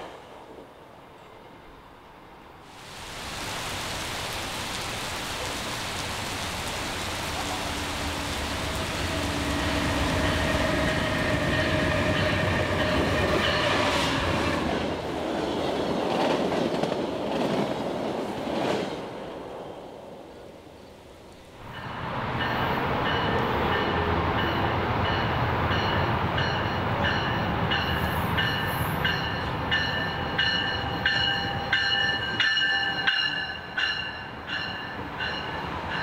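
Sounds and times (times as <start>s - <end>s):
train engine drone and whine: 0.0s - 16.2s
heavy rain hiss: 2.6s - 11.5s.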